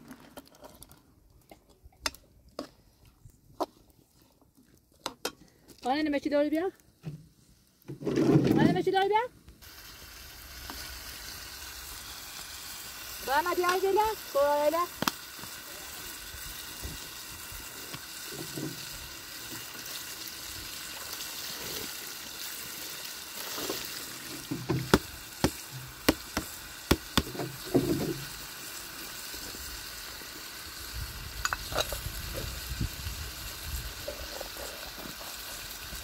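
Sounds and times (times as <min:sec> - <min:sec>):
food sizzling in a pan: 0:09.6 - 0:36.0.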